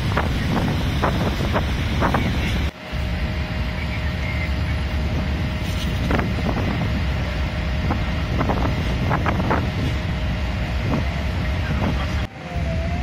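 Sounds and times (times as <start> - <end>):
wind buffeting microphone: 0.0 - 3.3, 4.6 - 13.0
road traffic rumble: 0.0 - 13.0.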